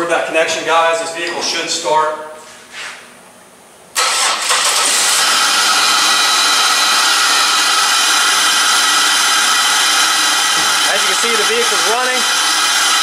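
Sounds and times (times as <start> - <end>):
car engine starting and running: 4.0 - 13.0.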